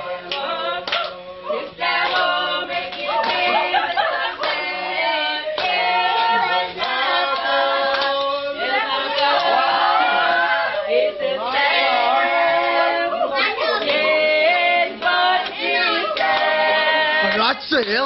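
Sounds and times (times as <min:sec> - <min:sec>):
group of voices singing: 0:00.0 - 0:18.0
hand claps: 0:00.3 - 0:01.2, 0:02.0 - 0:03.7, 0:04.4 - 0:04.7, 0:05.6 - 0:08.3, 0:16.2 - 0:17.5.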